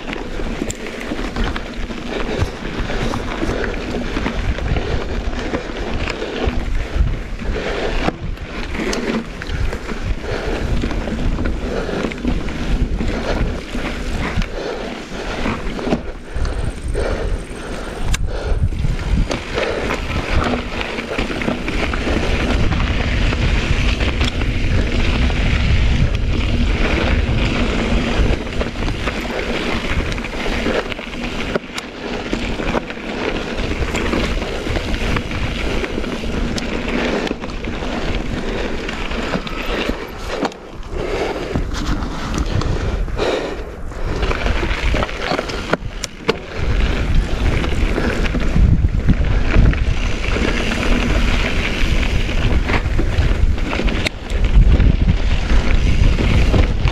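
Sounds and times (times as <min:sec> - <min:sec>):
bike knocks and rattles: 0:00.0 - 0:07.4, 0:08.0 - 0:42.8
bike tyres on gravel: 0:00.0 - 0:56.9
wind buffeting microphone: 0:00.0 - 0:56.9.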